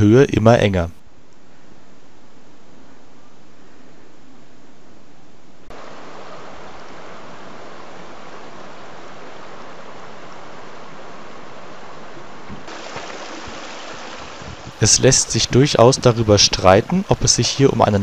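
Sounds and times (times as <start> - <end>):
stream splashing over rocks: 12.6 - 16.7.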